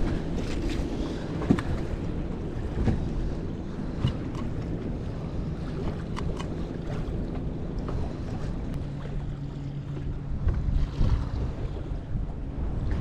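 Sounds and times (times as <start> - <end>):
water lapping against hull: 0.0 - 13.0
wind buffeting microphone: 0.0 - 13.0.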